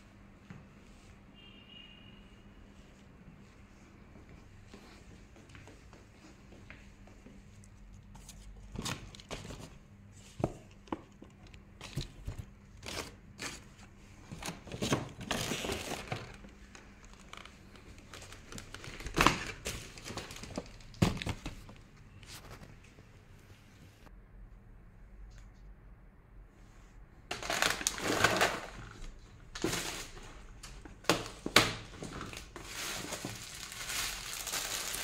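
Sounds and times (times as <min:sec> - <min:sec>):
paper bags rustling: 0:11.7 - 0:22.7, 0:27.3 - 0:35.0.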